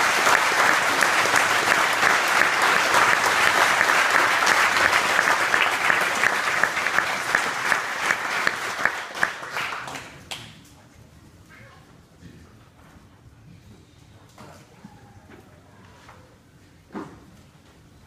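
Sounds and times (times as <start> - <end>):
small group clapping: 0.0 - 10.6.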